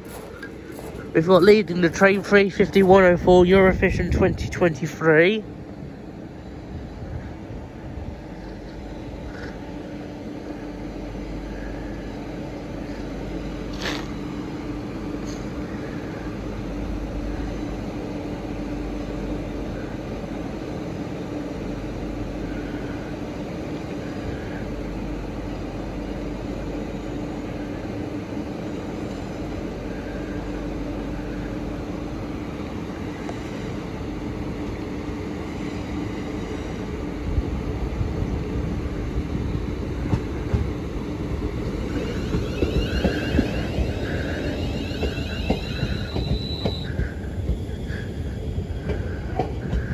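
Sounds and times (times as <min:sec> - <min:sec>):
electric train humming: 0:00.0 - 0:49.9
train traction whine: 0:00.0 - 0:49.9
train wheel clatter: 0:13.7 - 0:14.3, 0:40.0 - 0:49.9.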